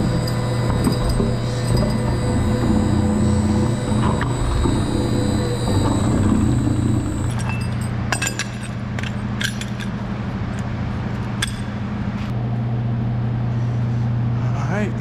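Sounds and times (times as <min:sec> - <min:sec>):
metallic clinks of hose couplings: 0:07.3 - 0:09.9.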